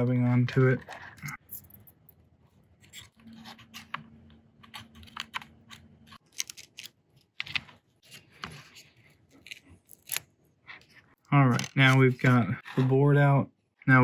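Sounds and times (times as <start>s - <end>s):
small clicks and scrapes prying: 2.8s - 7.7s.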